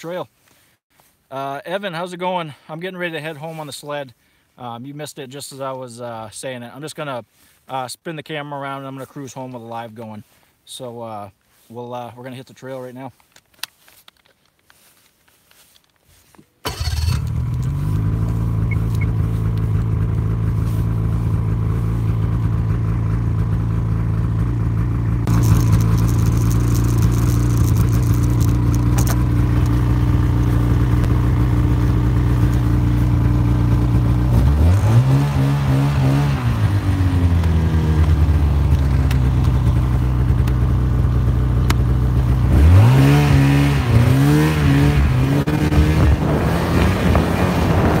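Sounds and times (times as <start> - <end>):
snowmobile engine running: 16.7 - 48.0.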